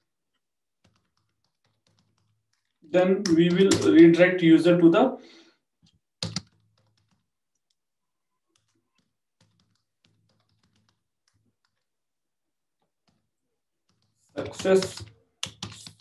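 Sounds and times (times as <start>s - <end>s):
faint keyboard typing clicks: 0.0s - 4.0s, 5.8s - 7.8s, 8.4s - 11.9s, 12.8s - 16.0s.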